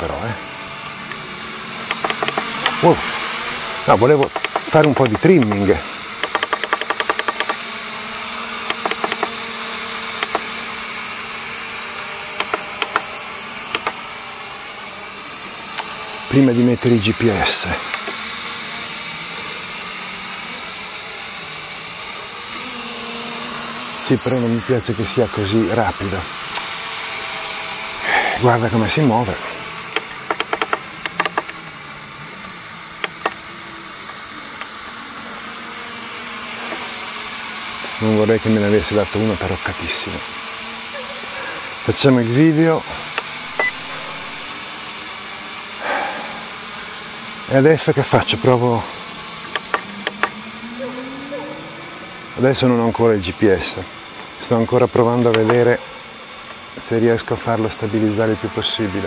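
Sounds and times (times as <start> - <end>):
quadcopter motors whining: 0.0 - 59.0
short clicks: 6.2 - 7.6, 8.6 - 9.4
short transmitter beeps: 43.5 - 44.4.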